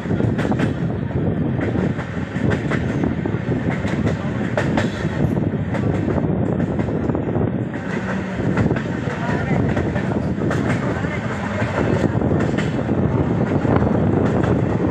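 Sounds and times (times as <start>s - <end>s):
train wheels rumbling on rails: 0.0s - 14.9s.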